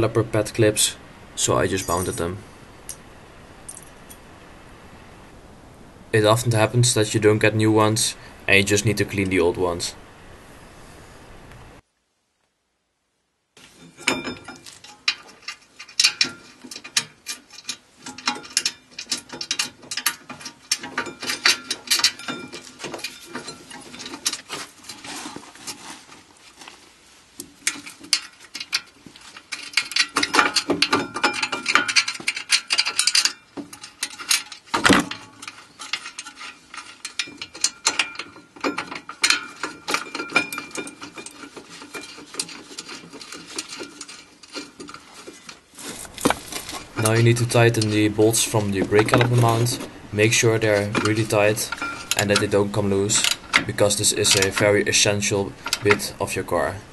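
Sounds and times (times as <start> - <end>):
metal parts clinking: 13.7 - 25.8, 27.6 - 56.8.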